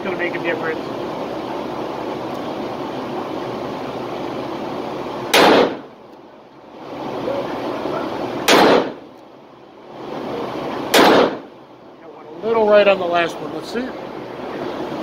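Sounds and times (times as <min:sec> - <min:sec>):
indoor range background noise: 0:00.0 - 0:15.0
revolver shots: 0:05.3 - 0:05.9, 0:08.4 - 0:09.0, 0:10.9 - 0:11.5.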